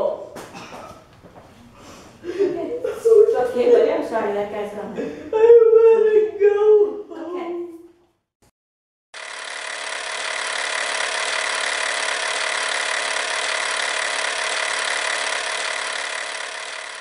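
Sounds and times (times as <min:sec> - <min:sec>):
machine-like buzzing: 0:09.2 - 0:17.0.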